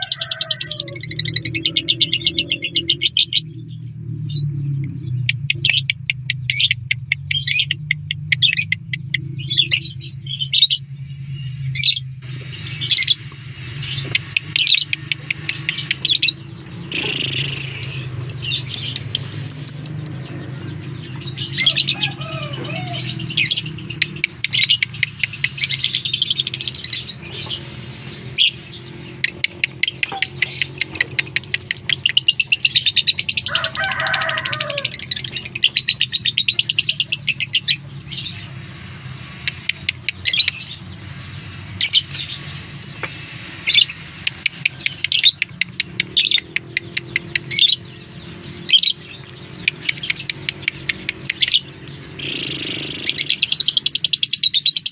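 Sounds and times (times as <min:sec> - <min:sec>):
lovebird chattering trills: 0:43.8 - 0:54.9.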